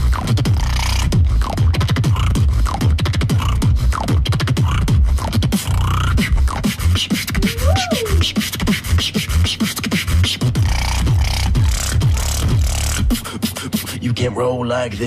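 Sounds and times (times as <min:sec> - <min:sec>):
beatboxing kick sounds: 0:00.0 - 0:14.4
beatboxed clicking snares: 0:00.2 - 0:14.2
sliding vocal tone: 0:06.2 - 0:10.4.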